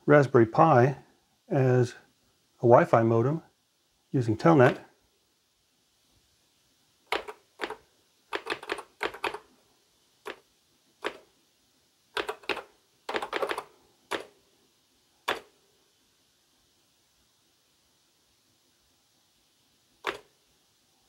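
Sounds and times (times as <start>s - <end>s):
keyboard keystrokes clicking: 7.1s - 9.4s, 11.0s - 11.2s, 12.2s - 14.3s, 20.0s - 20.3s.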